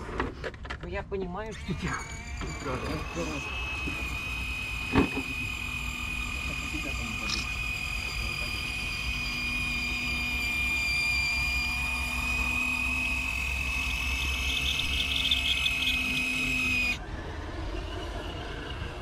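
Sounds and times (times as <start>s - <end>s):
electric motor whining: 1.4s - 17.1s.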